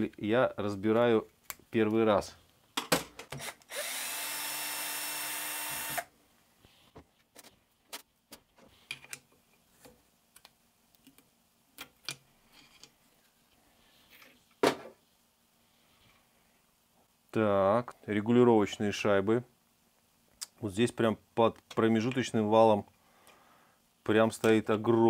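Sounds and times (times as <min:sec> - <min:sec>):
power tool motor running: 0:03.7 - 0:06.1.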